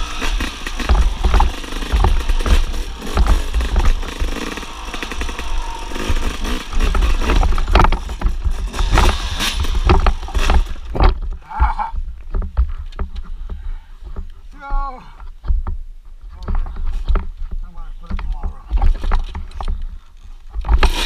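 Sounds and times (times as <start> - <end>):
two-stroke motorcycle engine: 0.0 - 11.4, 20.5 - 21.0
bike clattering on rocks: 0.0 - 14.2.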